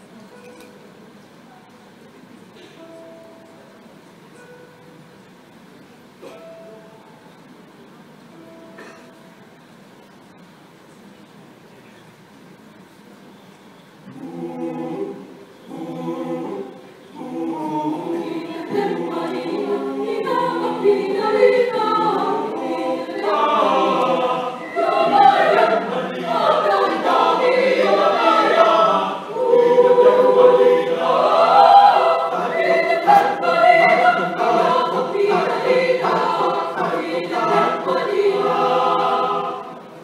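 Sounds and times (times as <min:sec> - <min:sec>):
mixed choir singing a cappella: 0:14.1 - 0:40.0.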